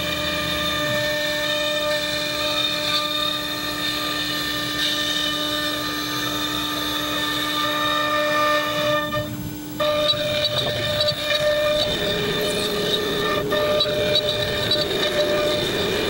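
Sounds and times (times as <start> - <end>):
router spindle whining: 0.0 - 16.0
hiss of cutting and dust extraction: 9.3 - 16.0.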